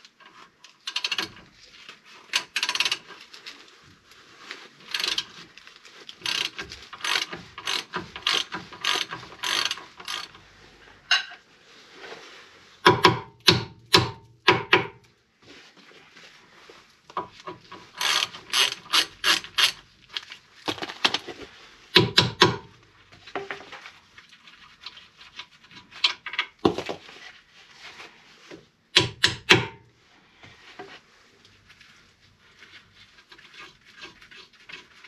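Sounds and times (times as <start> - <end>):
ratchet wrench clicking: 0.9 - 1.3, 6.2 - 10.3, 18.0 - 19.8.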